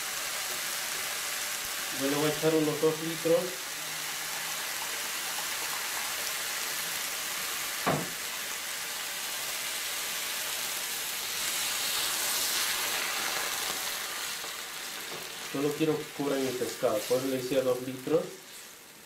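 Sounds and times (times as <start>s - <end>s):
food sizzling in frying pan: 0.0s - 19.0s
short knock: 7.8s - 8.2s.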